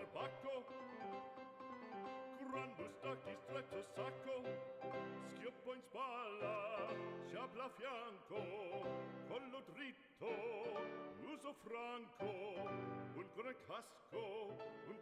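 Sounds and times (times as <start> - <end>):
operatic voice singing: 0.0 - 1.2, 2.2 - 15.0.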